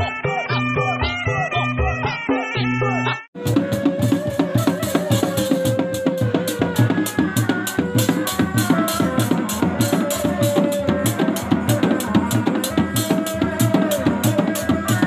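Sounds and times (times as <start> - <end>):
frame drums beaten fast: 3.4 - 15.0
shawm holding long notes: 3.4 - 15.0.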